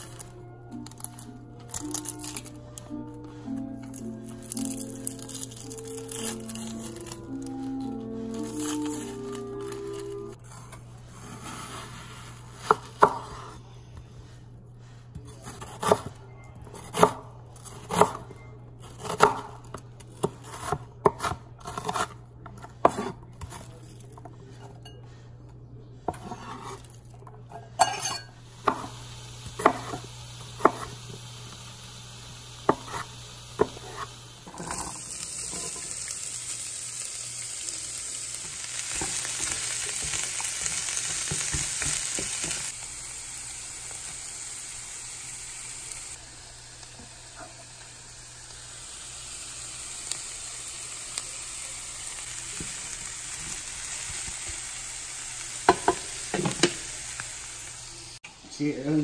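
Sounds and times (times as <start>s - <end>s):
vegetables sizzling in a skillet: 3.9s - 10.4s, 28.0s - 59.0s
knife chopping on wooden board: 12.6s - 13.6s, 32.7s - 34.8s.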